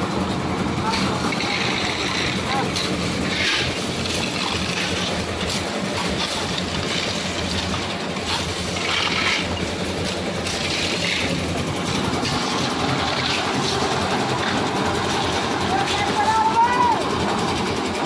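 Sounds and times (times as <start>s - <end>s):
concrete mixer engine running: 0.0s - 18.0s
stone chips scraping in metal pans: 1.4s - 9.7s, 10.4s - 11.4s.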